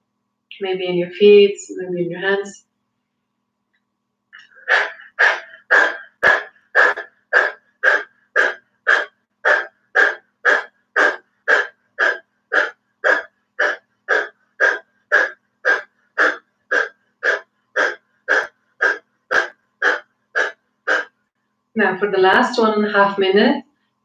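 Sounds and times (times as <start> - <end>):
woman panting rapidly: 4.4 - 21.1.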